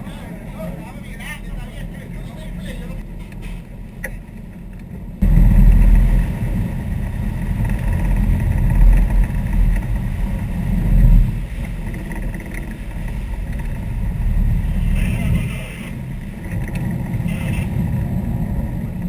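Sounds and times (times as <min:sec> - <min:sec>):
boat engines rumbling: 0:00.0 - 0:19.0.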